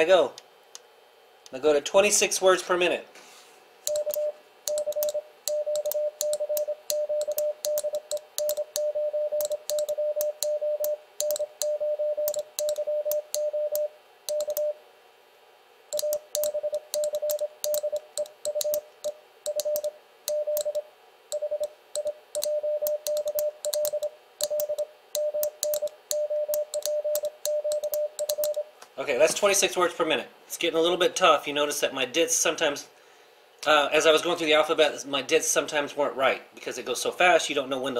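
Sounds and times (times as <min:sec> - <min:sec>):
morse code beeps: 0:03.9 - 0:14.8, 0:15.9 - 0:28.7.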